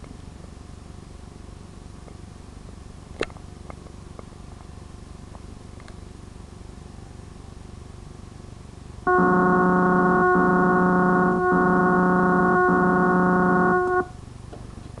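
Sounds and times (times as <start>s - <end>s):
loud steady electronic tone: 9.1s - 14.2s.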